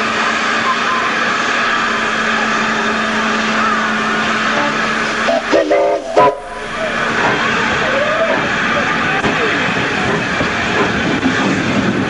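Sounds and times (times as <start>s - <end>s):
steam locomotive hissing: 0.0s - 12.0s
steam whistle blasts: 4.3s - 8.8s.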